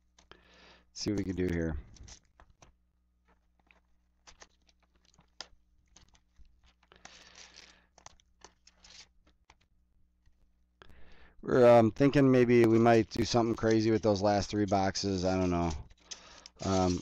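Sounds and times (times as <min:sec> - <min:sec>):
packaging rustling and crinkling: 0:01.3 - 0:10.4, 0:12.1 - 0:17.0.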